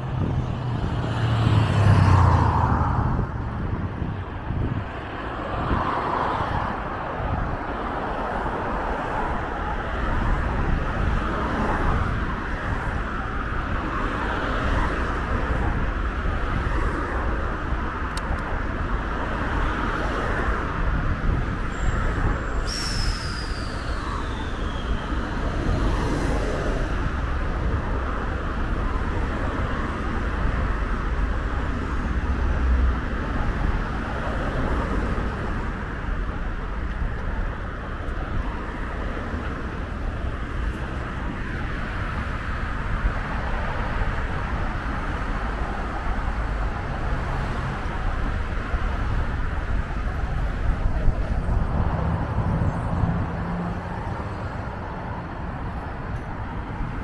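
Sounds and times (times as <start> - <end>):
road traffic rumble: 0.0 - 57.0
high squeal falling in pitch: 21.7 - 25.2.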